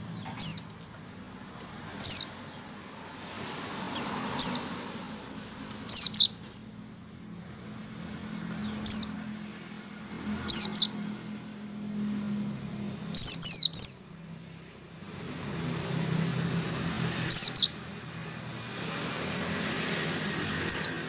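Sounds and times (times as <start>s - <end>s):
bird giving sharp high calls: 2.0s - 2.5s, 3.9s - 4.7s, 5.9s - 6.4s, 8.6s - 9.2s, 10.4s - 11.0s, 13.1s - 14.1s, 17.2s - 17.8s, 20.6s - 21.0s.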